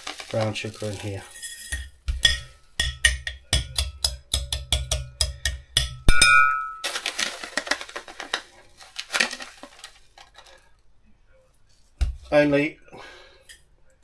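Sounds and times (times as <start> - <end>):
spoon scraping bowl: 0.0 - 5.6
metal spoon tapping glass bowl: 1.8 - 6.8.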